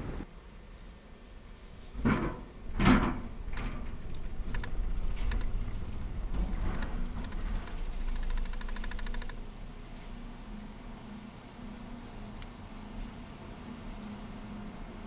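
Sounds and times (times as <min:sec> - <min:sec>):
car rolling on steel deck: 0:01.9 - 0:09.4
loud metal clunk: 0:02.0 - 0:04.0
fast ticking: 0:08.0 - 0:09.4.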